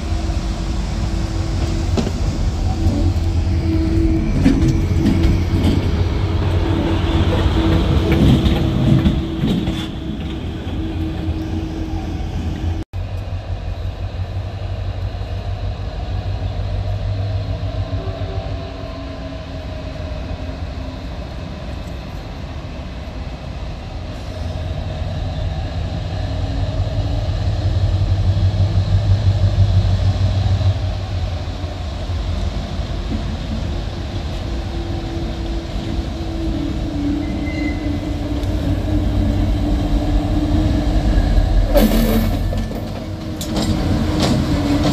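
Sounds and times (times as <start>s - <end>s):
diesel locomotive engine droning: 0.0s - 44.9s.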